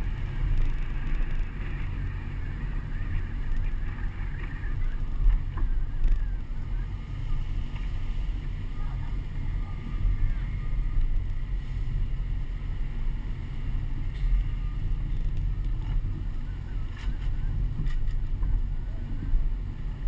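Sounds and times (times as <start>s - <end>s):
truck engine rumble: 0.0s - 20.0s.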